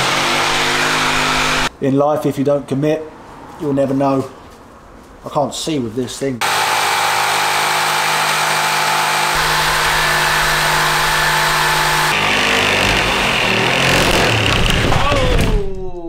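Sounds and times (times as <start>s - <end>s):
electric jigsaw cutting plywood: 0.0s - 1.7s, 6.4s - 15.1s.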